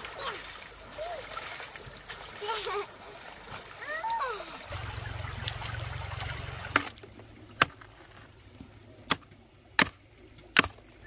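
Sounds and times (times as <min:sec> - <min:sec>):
low steady rumble: 0:04.4 - 0:11.0.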